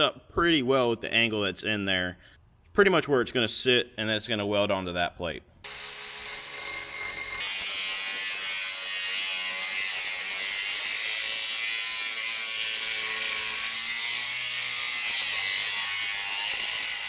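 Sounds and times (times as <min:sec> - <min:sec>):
angle grinder cutting steel: 0:05.6 - 0:17.0.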